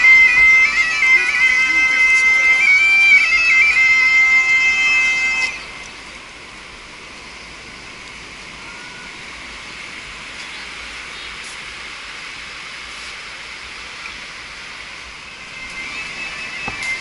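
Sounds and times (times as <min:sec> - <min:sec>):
bagpipe music: 0:00.0 - 0:05.9, 0:15.2 - 0:17.0
ocean surf: 0:05.6 - 0:17.0.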